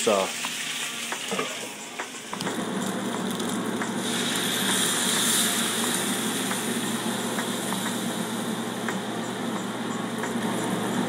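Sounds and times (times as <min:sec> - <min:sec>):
sauce sizzling in a hot pan: 0:00.0 - 0:08.9.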